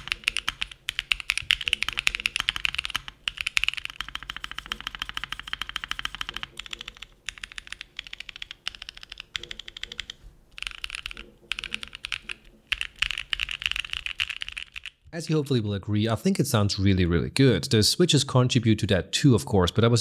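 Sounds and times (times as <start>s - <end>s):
fast typing on mechanical keyboard: 0.0s - 15.1s.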